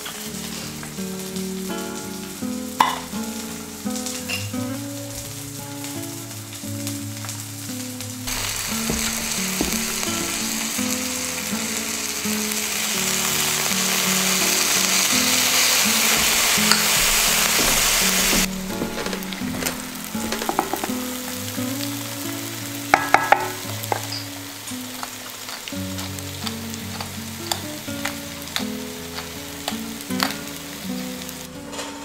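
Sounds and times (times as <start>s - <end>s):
food sizzling in a pan: 0.0s - 32.0s
utensils clinking against pan: 2.8s - 3.2s, 15.9s - 21.0s, 22.9s - 24.4s, 25.0s - 30.4s.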